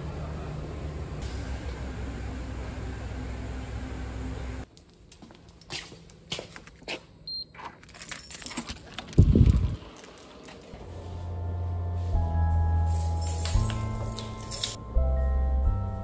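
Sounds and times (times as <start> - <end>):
outdoor background noise: 0.0 - 15.0
keycard rattling against lock: 7.6 - 10.8, 13.0 - 14.8.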